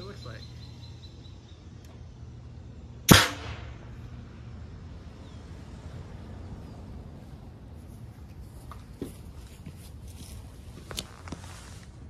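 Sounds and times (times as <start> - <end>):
air cannon blast: 3.1 - 4.0.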